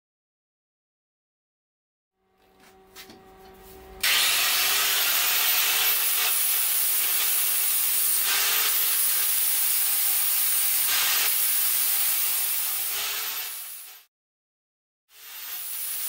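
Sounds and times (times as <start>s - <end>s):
angle grinder grinding steel: 2.4s - 14.1s, 15.1s - 16.0s.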